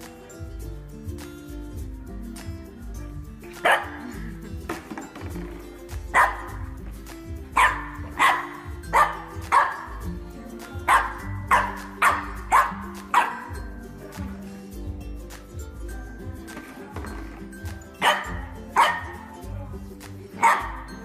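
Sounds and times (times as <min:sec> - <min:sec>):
background music with low notes: 0:00.0 - 0:21.0
dog barking: 0:03.6 - 0:04.2, 0:06.2 - 0:06.6, 0:07.6 - 0:10.0, 0:10.9 - 0:13.6, 0:18.0 - 0:19.3, 0:20.4 - 0:20.9.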